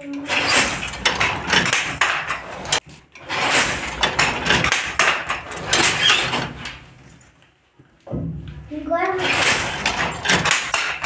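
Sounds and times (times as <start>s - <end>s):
wooden loom treadles knocking: 0.0s - 6.8s, 9.0s - 11.0s.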